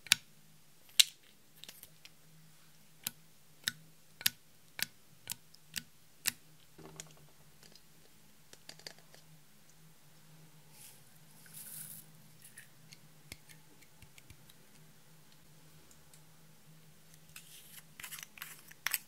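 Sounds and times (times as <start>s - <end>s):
faint steady hum: 0.0s - 19.0s
soft rustle: 10.7s - 12.7s.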